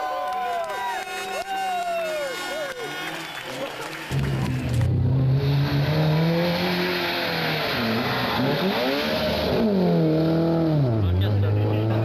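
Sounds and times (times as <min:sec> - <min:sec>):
rally car engine at high revs: 0:04.0 - 0:12.0.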